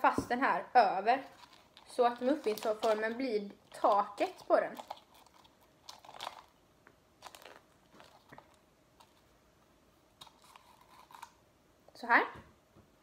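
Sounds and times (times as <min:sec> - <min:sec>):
paper crinkling: 0:01.2 - 0:06.6, 0:07.2 - 0:09.3, 0:10.2 - 0:11.4.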